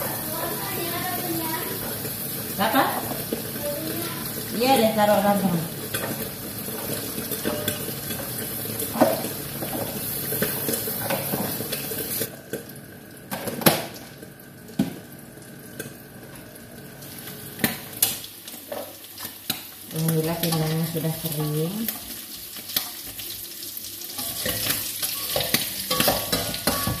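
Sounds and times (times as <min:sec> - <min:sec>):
stove hiss: 0:00.0 - 0:12.3, 0:17.0 - 0:27.0
pots and utensils clinking: 0:00.0 - 0:12.7, 0:17.1 - 0:27.0
metal pan lid clattering: 0:24.2 - 0:27.0.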